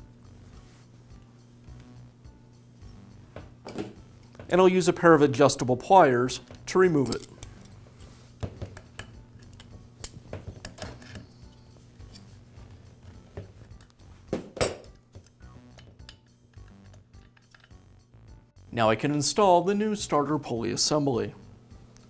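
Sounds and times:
faint background music: 0.0s - 22.0s
metallic clicks of pliers: 6.5s - 7.8s.

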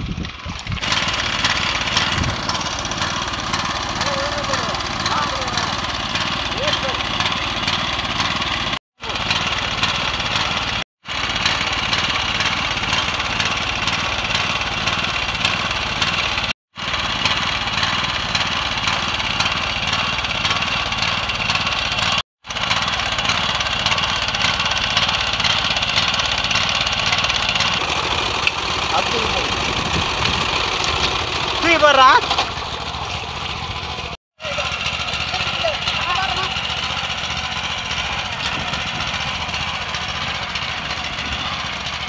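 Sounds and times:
small engine running: 0.0s - 42.0s.

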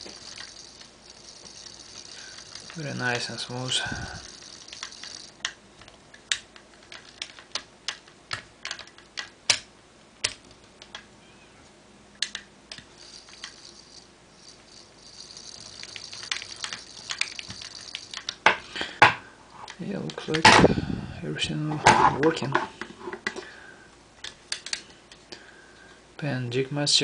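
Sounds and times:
fishing reel clicking: 0.0s - 5.6s, 13.0s - 18.4s
faint reel whir: 0.0s - 5.9s, 12.8s - 18.3s.

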